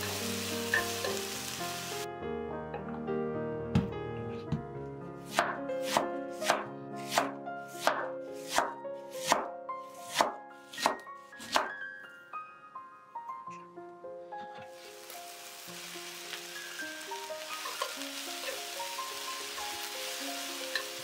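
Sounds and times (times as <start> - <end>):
cleaver slicing cabbage on board: 5.3 - 9.4, 10.1 - 11.7.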